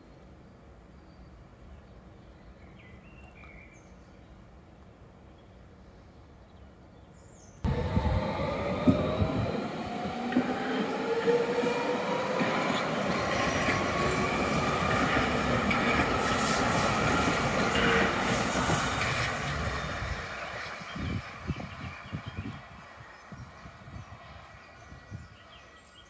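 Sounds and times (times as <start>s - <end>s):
train motor whine rising: 7.7s - 19.7s
train wheels rumbling: 7.7s - 24.8s.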